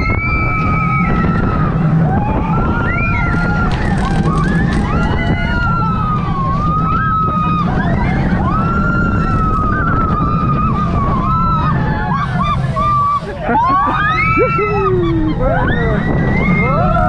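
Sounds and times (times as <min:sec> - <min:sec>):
roller coaster rumbling on track: 0:00.0 - 0:17.0
wind on microphone: 0:00.0 - 0:17.0.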